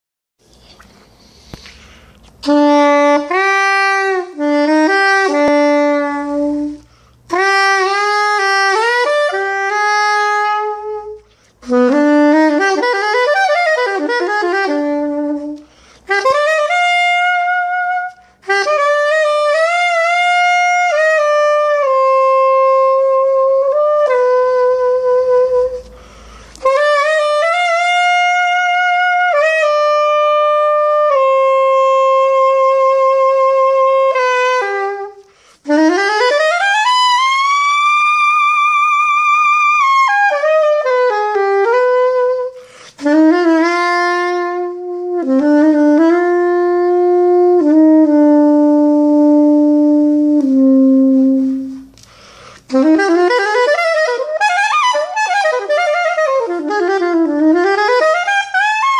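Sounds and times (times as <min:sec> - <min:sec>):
soprano saxophone melody: 0:00.4 - 0:58.9
player breathing: 0:00.5 - 0:02.4, 0:25.8 - 0:26.6, 0:42.6 - 0:43.0, 0:52.0 - 0:52.7.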